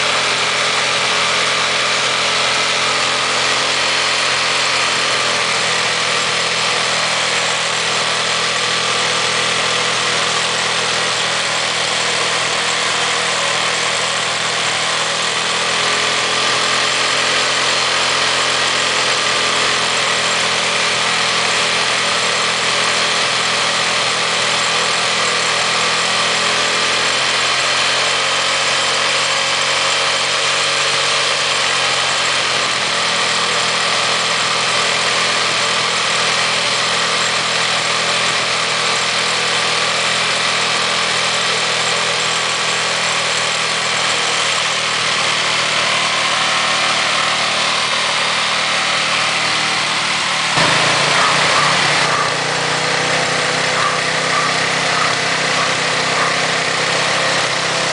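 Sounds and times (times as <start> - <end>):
motorcycle engine idling: 0.0 - 27.6, 31.5 - 57.9.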